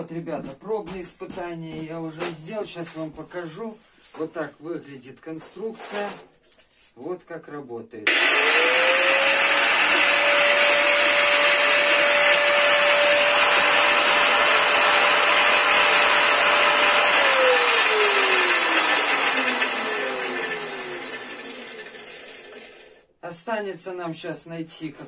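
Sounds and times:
angle grinder motor whining: 0:08.1 - 0:23.0.

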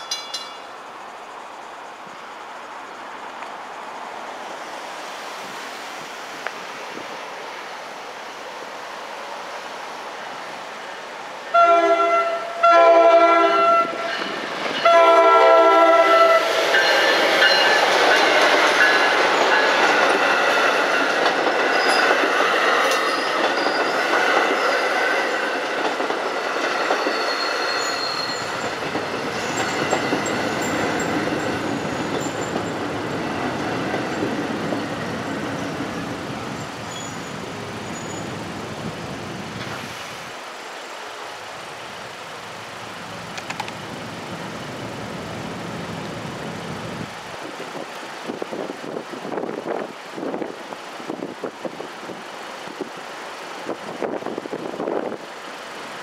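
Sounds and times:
train wheels on rails: 0:00.0 - 0:02.4, 0:13.5 - 0:56.0
train horn blasts: 0:11.5 - 0:16.5
high squeal: 0:26.8 - 0:32.8, 0:34.1 - 0:38.5.

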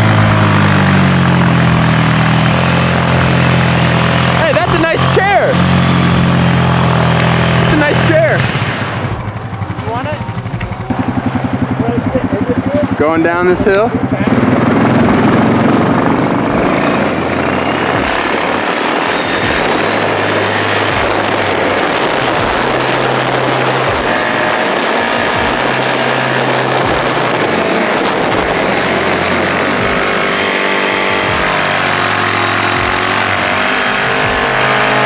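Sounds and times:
atv engine running: 0:00.0 - 0:35.0
wind noise on microphone: 0:14.4 - 0:31.4.

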